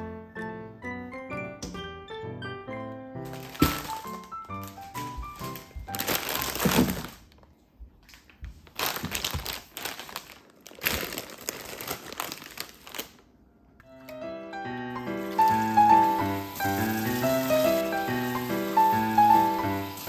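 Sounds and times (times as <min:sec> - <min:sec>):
background music: 0:00.0 - 0:06.6, 0:13.8 - 0:20.0
plastic bags crinkling: 0:03.2 - 0:13.4, 0:15.0 - 0:20.0.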